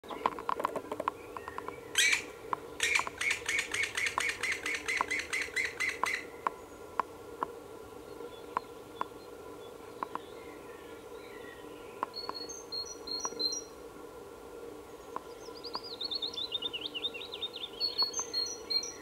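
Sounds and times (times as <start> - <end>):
woodpecker nestling begging calls: 0.1 - 6.5.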